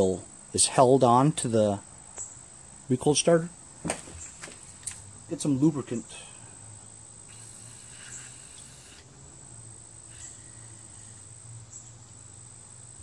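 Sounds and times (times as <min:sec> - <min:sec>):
sprayer hiss: 0:07.2 - 0:09.1, 0:10.0 - 0:11.5.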